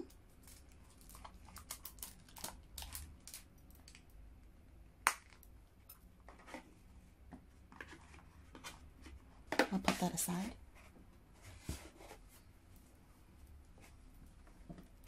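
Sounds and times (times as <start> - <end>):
soft rustles and light taps: 7.3 - 12.9.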